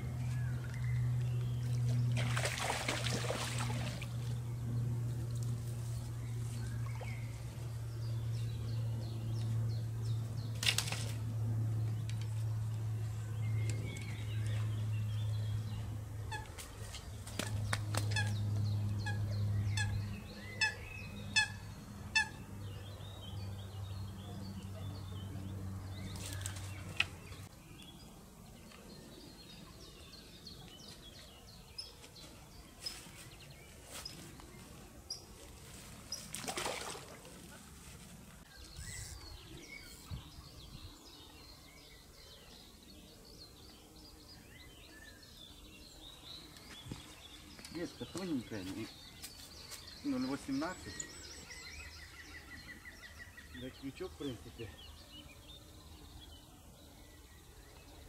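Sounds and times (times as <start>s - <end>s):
steady low hum: 0.0s - 58.0s
birds calling: 11.8s - 58.0s.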